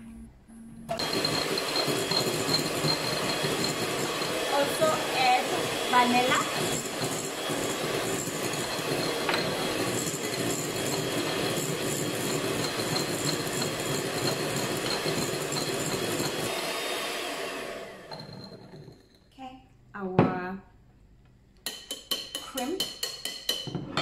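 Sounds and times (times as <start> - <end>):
electric mixer whipping cream: 0.9 - 18.9.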